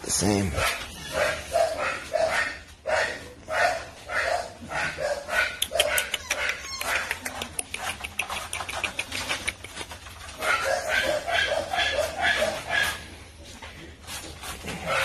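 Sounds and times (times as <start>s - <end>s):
puppy yapping: 0.6s - 13.0s
fast clicks and taps: 5.6s - 10.2s.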